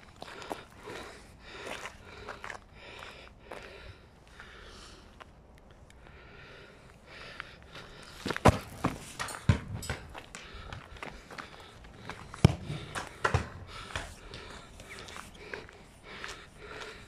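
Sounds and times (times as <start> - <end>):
footsteps: 7.7 - 17.0
football kicked on asphalt: 8.2 - 14.6.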